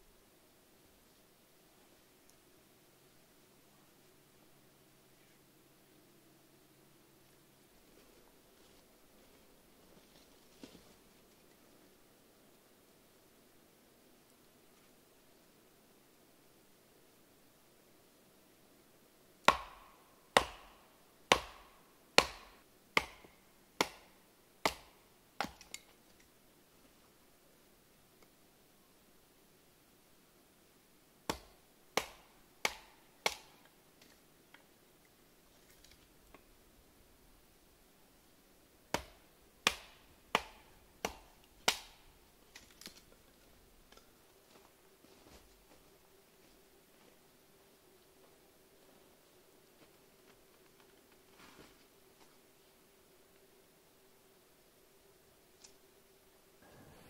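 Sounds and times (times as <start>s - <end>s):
log splitting: 39.0s - 43.2s.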